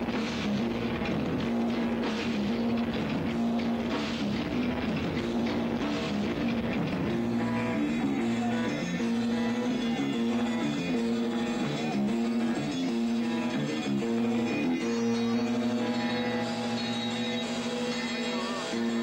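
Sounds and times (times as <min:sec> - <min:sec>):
live rock band playing: 0:00.0 - 0:19.0.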